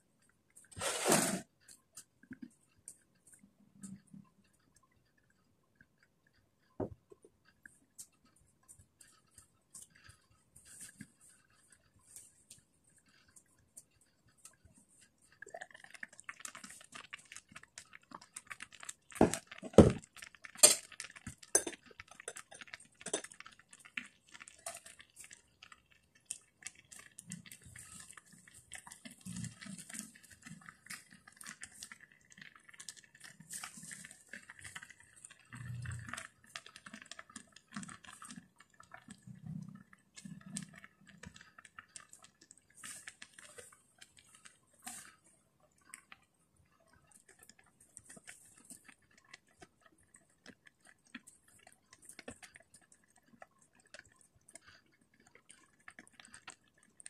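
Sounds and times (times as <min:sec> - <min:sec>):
cookware clinking: 0:20.6 - 0:20.9, 0:21.6 - 0:23.4.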